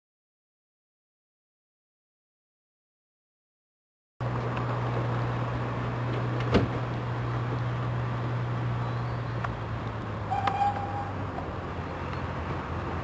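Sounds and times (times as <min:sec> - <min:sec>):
distant diesel locomotive hum: 0:04.2 - 0:13.0
brief high tone: 0:10.3 - 0:11.2.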